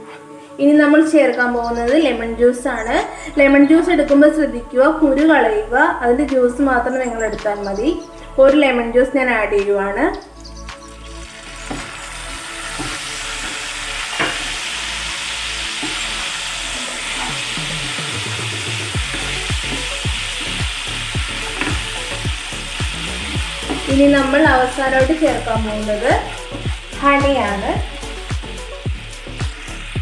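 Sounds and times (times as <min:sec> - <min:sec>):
juice sizzling in hot pan: 0:10.4 - 0:30.0.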